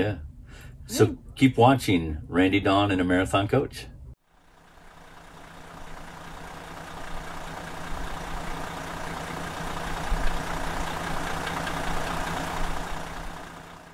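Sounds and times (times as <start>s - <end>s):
heavy vehicle engine idling: 4.2s - 13.9s.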